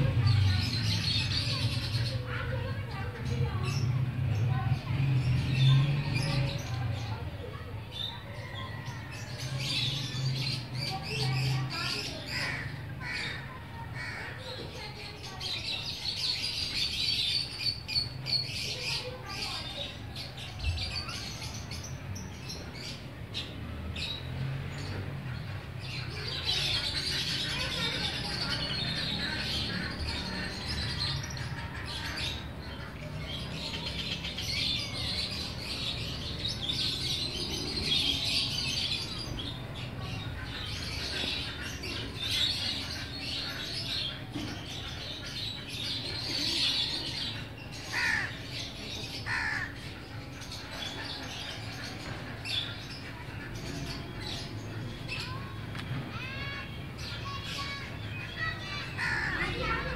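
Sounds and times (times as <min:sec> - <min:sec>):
small birds chirping: 0:00.0 - 0:59.9
crows calling: 0:12.1 - 0:14.7, 0:40.0 - 0:54.7, 0:57.3 - 0:59.9.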